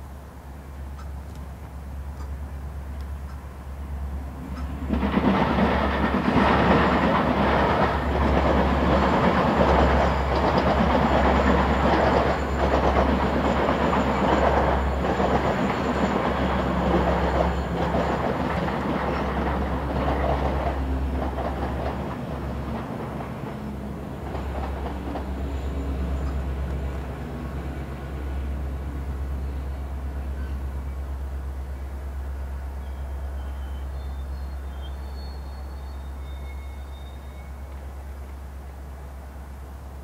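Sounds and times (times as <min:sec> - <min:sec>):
train wheels clattering: 0:04.4 - 0:28.5.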